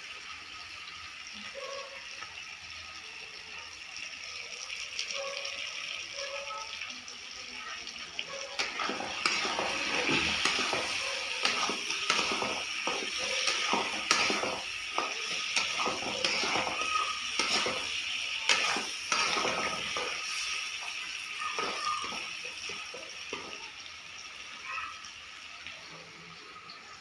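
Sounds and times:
curry sizzling in a pan: 0.0s - 27.0s
spatula scraping a pan: 8.6s - 23.6s.

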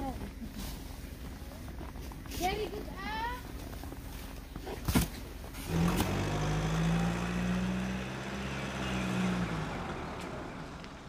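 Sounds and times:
truck engine under load: 5.2s - 11.0s.

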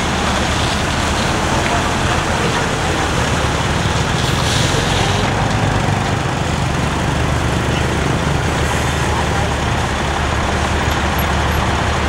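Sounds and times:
truck diesel engine droning: 0.0s - 12.0s.

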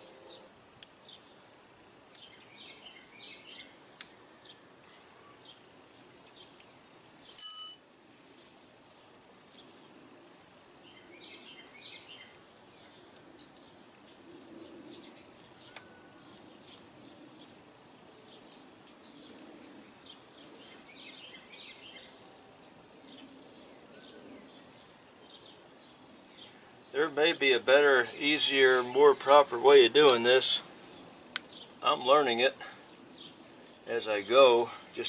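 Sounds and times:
faint bird chirps: 6.2s - 8.6s, 10.4s - 27.1s.

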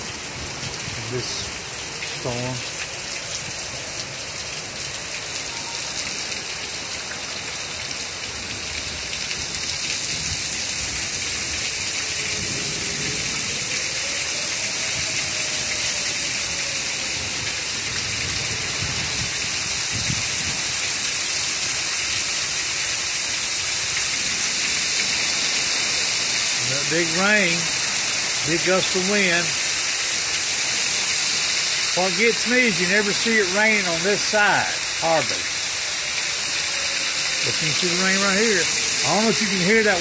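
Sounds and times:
heavy rain pouring: 0.0s - 40.0s
gusting wind: 17.2s - 20.9s.

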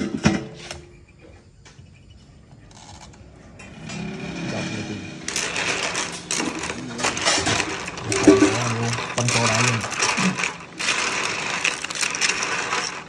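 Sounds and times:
shells clattering in a metal pan: 5.3s - 13.0s.

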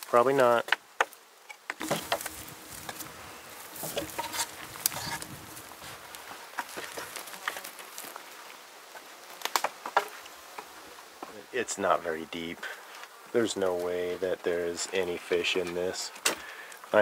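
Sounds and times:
faint insect buzz: 0.0s - 17.0s
footsteps on dry sticks: 0.6s - 11.4s.

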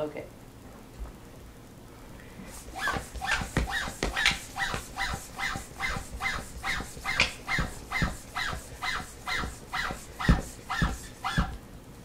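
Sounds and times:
air gun pump squeak and thump: 2.8s - 11.6s.

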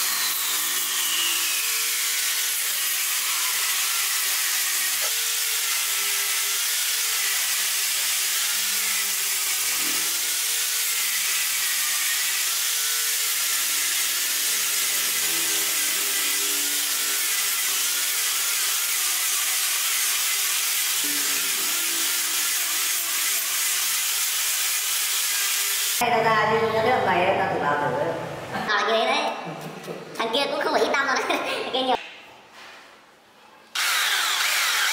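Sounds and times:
angle grinder sanding wood: 0.0s - 26.0s, 33.8s - 34.9s.

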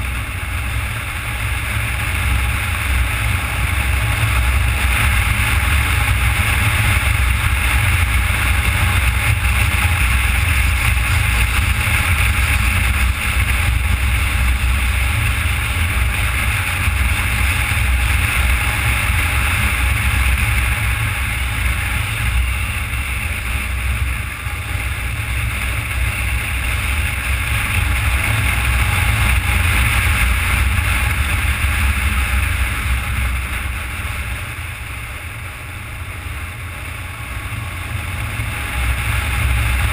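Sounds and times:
motorcycle engine drone: 0.0s - 39.9s.

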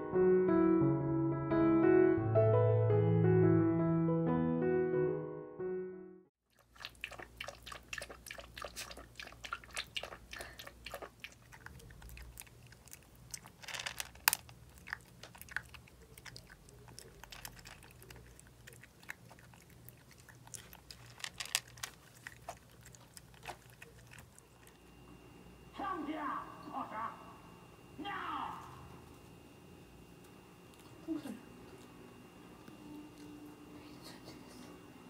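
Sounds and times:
puppy chewing: 6.5s - 25.0s, 30.1s - 34.7s.

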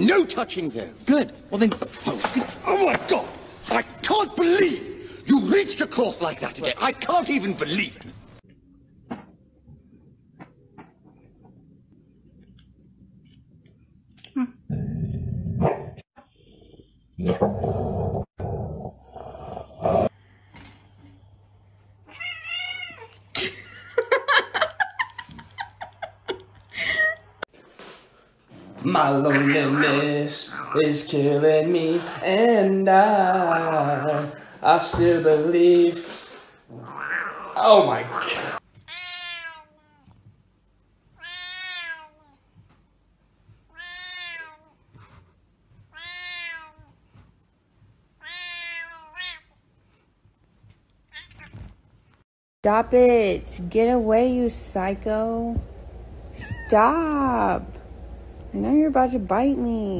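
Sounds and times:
cat meowing: 22.1s - 23.2s, 38.8s - 40.2s, 41.2s - 42.4s, 43.7s - 44.8s, 45.9s - 47.0s, 48.2s - 49.5s, 51.1s - 51.7s
person laughing: 23.3s - 27.4s.

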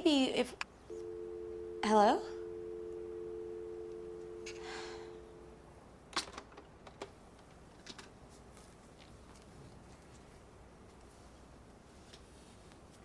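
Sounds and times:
telephone line tone: 0.9s - 5.6s.

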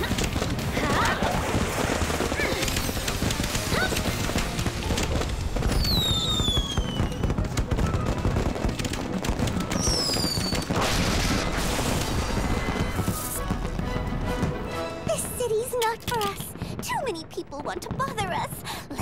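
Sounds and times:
music: 0.0s - 16.6s
fireworks pops and crackling: 0.0s - 19.0s
cartoon falling whistles: 5.8s - 7.2s, 9.8s - 10.6s.

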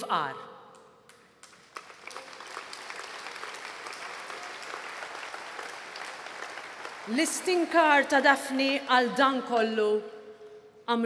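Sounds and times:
crowd applauding: 1.4s - 8.8s.

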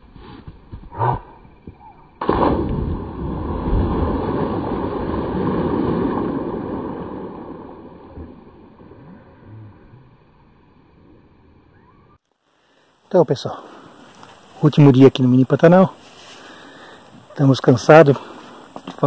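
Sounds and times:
heavy splash into water: 2.2s - 8.8s.

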